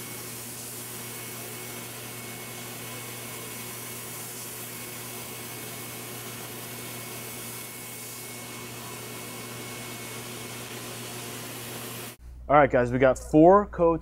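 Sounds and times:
paint spray gun hissing: 0.0s - 1.1s, 3.4s - 5.0s.

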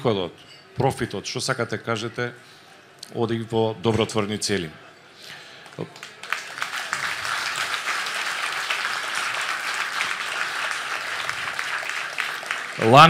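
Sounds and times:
audience applauding: 5.6s - 13.0s.

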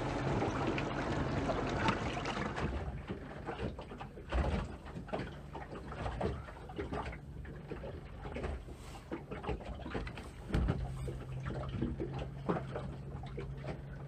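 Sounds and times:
water noise: 0.0s - 14.0s
wind: 0.0s - 14.0s
dull thump: 10.5s - 10.9s.

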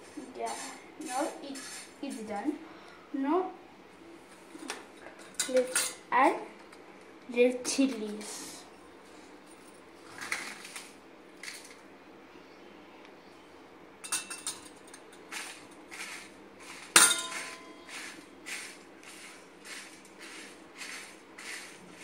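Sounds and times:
spices scraping on iron pan: 14.2s - 22.0s
sharp metal clink: 17.0s - 17.7s.

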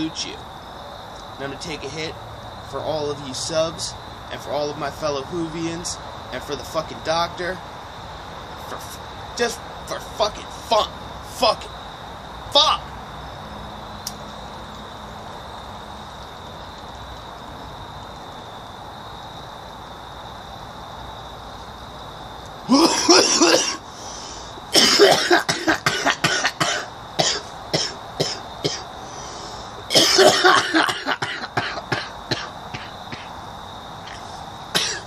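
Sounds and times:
man coughing hard: 22.7s - 23.8s, 24.7s - 28.8s, 29.9s - 33.3s, 34.7s - 35.0s.

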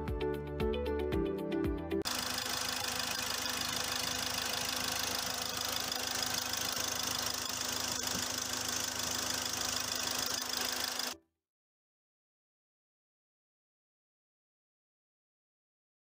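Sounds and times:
diesel engine idling: 2.1s - 11.1s.

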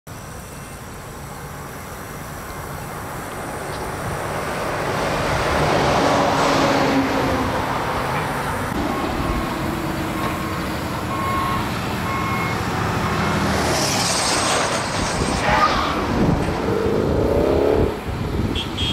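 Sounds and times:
road vehicle passing: 2.7s - 18.9s
backup alarm beeping: 8.8s - 9.4s, 10.0s - 13.3s.

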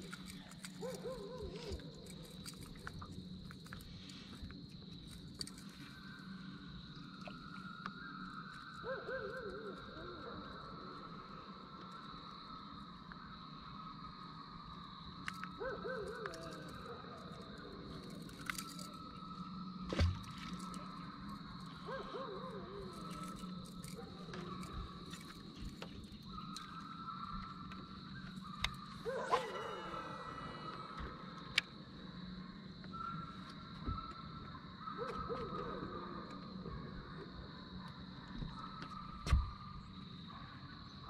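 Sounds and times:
trolling motor hum and whine: 0.0s - 41.0s
fishing tackle clicks and knocks: 18.0s - 19.0s.

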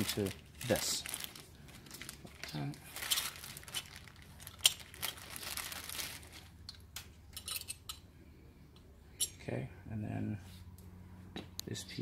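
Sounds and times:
plastic packaging crinkling: 0.0s - 6.9s.

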